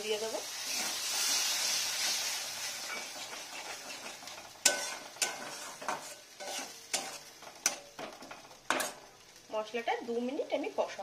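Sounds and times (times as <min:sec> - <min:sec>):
soft sizzle of frying: 0:00.0 - 0:11.0
metal spatula stirring: 0:00.6 - 0:09.2.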